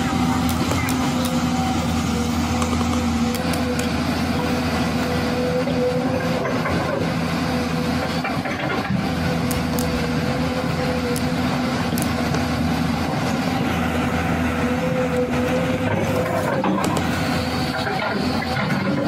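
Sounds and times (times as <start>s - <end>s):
engine humming drone: 0.0s - 19.0s.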